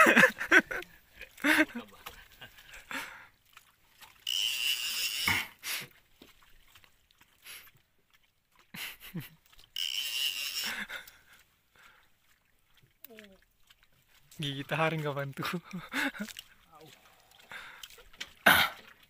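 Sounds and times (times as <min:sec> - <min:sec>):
fishing reel buzzing whirs: 0:04.2 - 0:05.6, 0:09.8 - 0:10.9.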